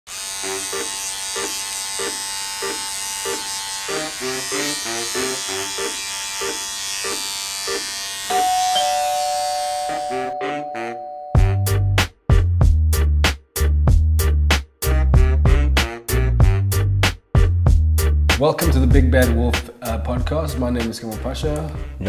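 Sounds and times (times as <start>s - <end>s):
electric hair clippers buzzing: 0.1s - 11.2s.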